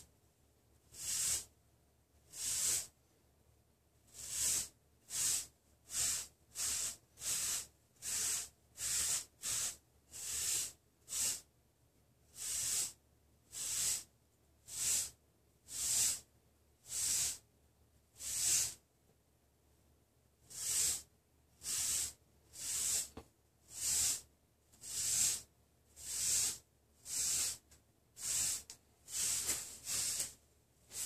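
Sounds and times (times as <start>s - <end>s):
brush swishing over hair: 20.5s - 27.6s, 28.2s - 31.0s.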